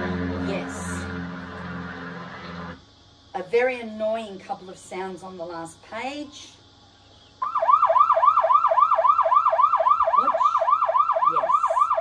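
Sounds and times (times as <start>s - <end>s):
police siren yelp: 7.4s - 12.0s.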